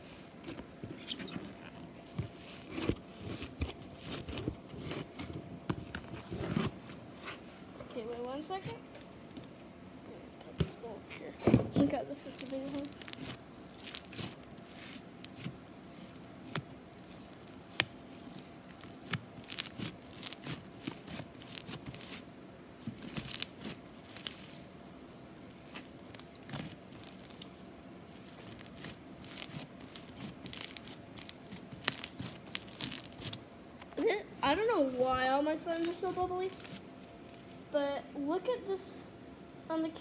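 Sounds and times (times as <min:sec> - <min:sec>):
slime squishing and popping: 0:12.3 - 0:22.2, 0:22.8 - 0:24.7, 0:25.4 - 0:33.4.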